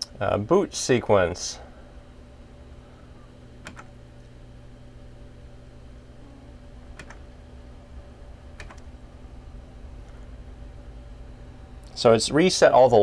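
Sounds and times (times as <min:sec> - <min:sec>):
computer fans humming: 0:00.0 - 0:13.0
computer keyboard key presses: 0:03.6 - 0:03.9, 0:07.0 - 0:07.2, 0:08.6 - 0:08.8.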